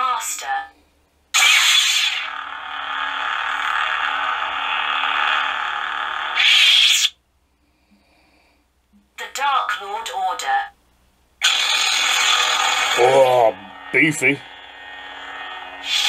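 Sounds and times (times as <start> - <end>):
lightsaber retraction: 1.4 - 5.4, 11.4 - 16.0
lightsaber electric hum: 1.4 - 7.1, 11.4 - 16.0
lightsaber ignition burst: 1.4 - 7.1, 11.4 - 16.0.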